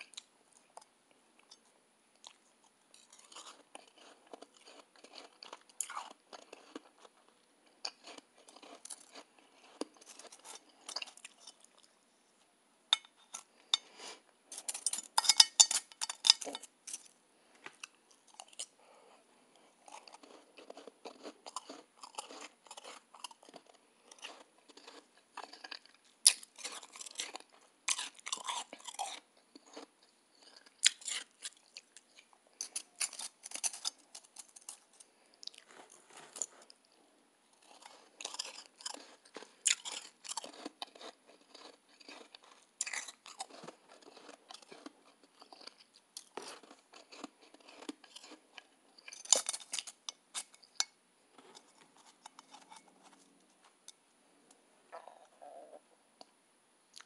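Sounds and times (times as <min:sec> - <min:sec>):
chewing crunchy shaved ice: 0:02.2 - 0:11.9, 0:17.8 - 0:18.8, 0:19.5 - 0:37.0, 0:37.6 - 0:50.7, 0:51.3 - 0:53.2.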